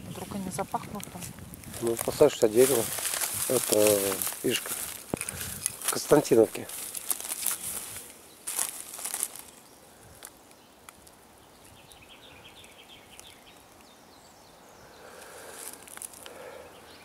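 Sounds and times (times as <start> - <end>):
sharp crackles: 0.0 - 12.0, 12.6 - 14.0, 15.1 - 16.5.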